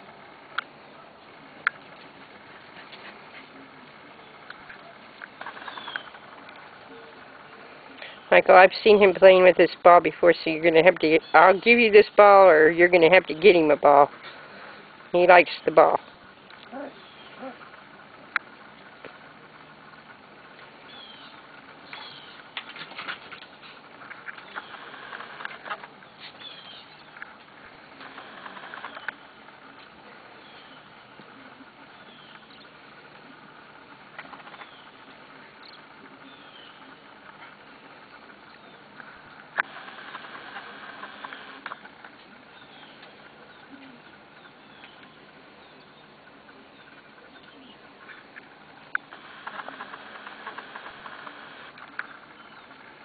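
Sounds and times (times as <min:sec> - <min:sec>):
puppy paws pattering and clicking: 0:01.6 - 0:06.9, 0:21.8 - 0:31.4
puppy claws pattering and scrabbling: 0:21.9 - 0:27.4.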